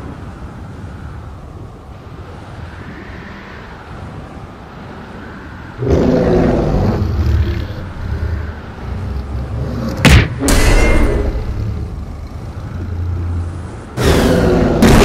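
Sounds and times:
low rumbling ambience: 0:03.2 - 0:15.0
monster roar: 0:05.8 - 0:08.5, 0:13.9 - 0:15.0.

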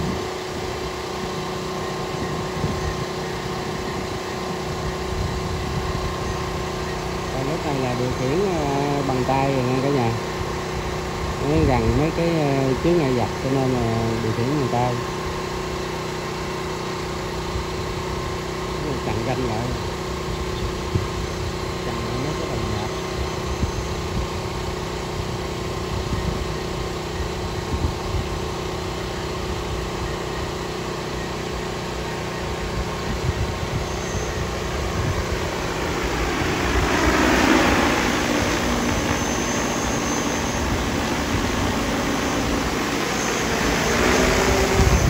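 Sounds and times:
drone rotors humming: 0:00.0 - 0:45.0.

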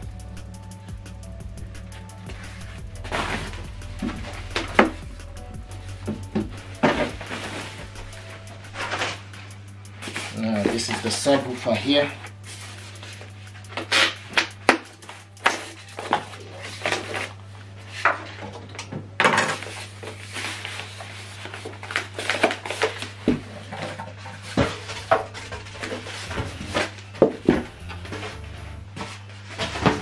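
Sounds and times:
plastic wrap rustling: 0:02.0 - 0:18.8, 0:19.6 - 0:30.0
foam scraping and knocking: 0:02.3 - 0:05.0.

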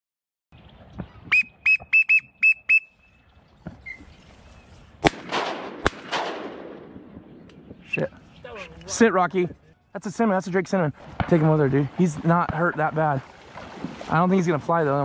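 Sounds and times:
whistle call peeps: 0:01.3 - 0:03.2, 0:03.8 - 0:04.1
shotgun shots with echo: 0:05.0 - 0:07.4, 0:11.2 - 0:11.7.

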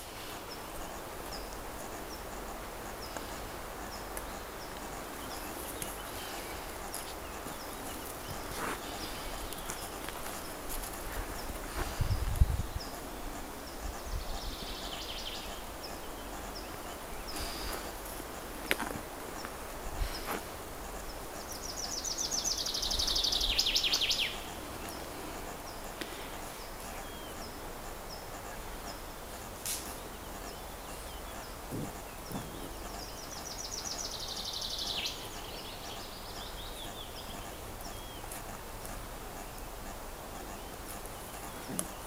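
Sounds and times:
songbird trilling: 0:21.0 - 0:25.8.

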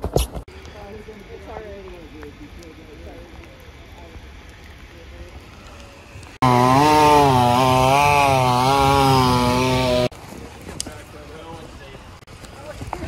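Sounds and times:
chainsaw cutting limbs: 0:06.4 - 0:10.2.

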